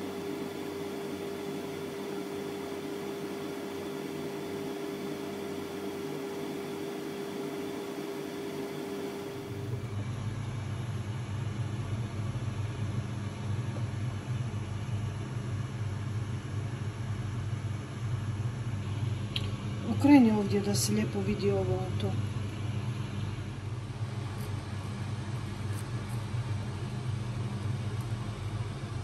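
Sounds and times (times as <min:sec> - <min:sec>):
mechanical hum with tone and hiss: 0:00.0 - 0:29.0.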